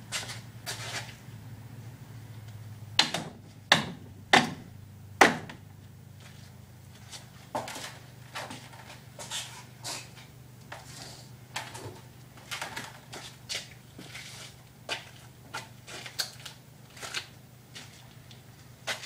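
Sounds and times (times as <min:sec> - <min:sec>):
steady low hum: 0:00.0 - 0:19.0
sharp knocks: 0:03.0 - 0:05.6.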